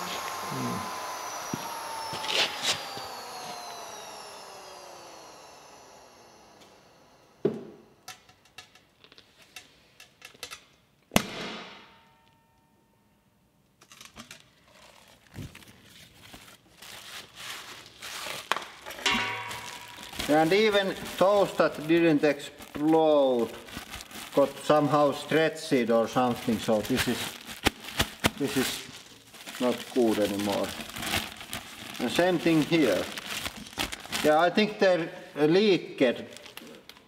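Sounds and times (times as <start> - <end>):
vacuum pump motor winding down: 0.0 - 8.1.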